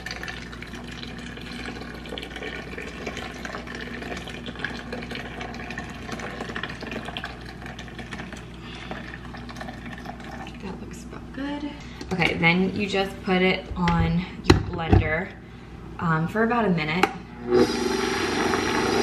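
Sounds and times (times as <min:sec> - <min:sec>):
hot water pouring into a jar: 0:00.0 - 0:10.7.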